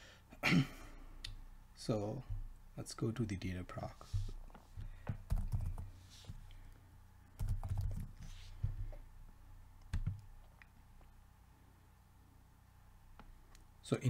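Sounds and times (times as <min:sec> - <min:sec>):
computer keyboard typing: 0:05.2 - 0:05.9, 0:07.4 - 0:08.2, 0:09.9 - 0:10.2.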